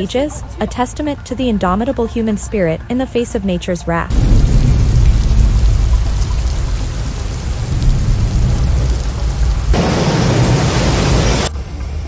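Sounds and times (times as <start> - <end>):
heavy rain pouring: 4.1 - 11.5
low rumble: 4.1 - 11.5.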